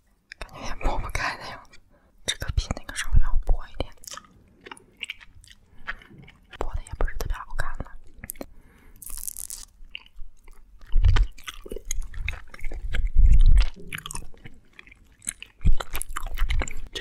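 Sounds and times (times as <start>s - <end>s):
chewing and biting candy: 3.8s - 17.0s
wet mouth clicks: 9.5s - 17.0s.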